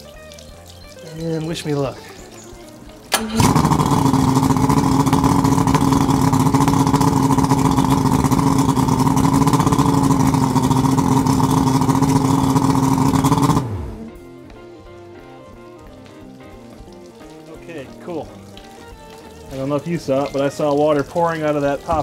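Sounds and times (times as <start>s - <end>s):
outboard engine starting and idling: 1.5s - 14.3s
engine shutting off and running down: 2.4s - 14.5s.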